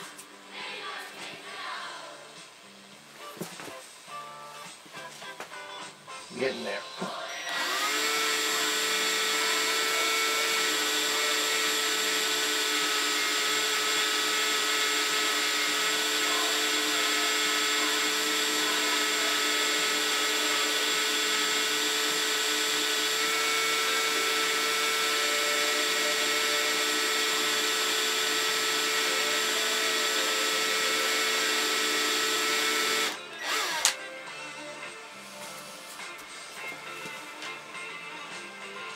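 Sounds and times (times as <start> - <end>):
power drill boring into steel: 7.4 - 34.0.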